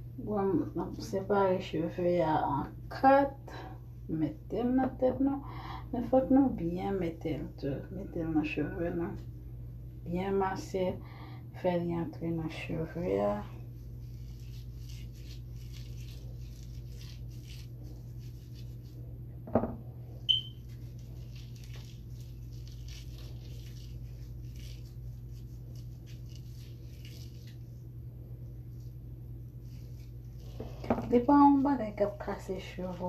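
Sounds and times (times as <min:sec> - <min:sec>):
steady low hum: 0:00.0 - 0:33.0
soft squishing of wet hair: 0:12.3 - 0:19.3, 0:20.1 - 0:33.0
short thump: 0:19.4 - 0:19.8
short high chirp: 0:20.3 - 0:20.6.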